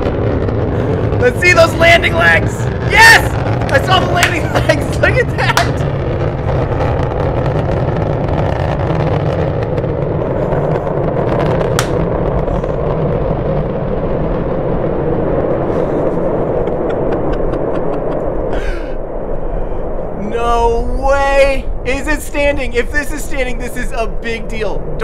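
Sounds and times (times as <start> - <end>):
sharp crack: 0.0 - 14.4
rocket engine rumble: 0.0 - 25.0.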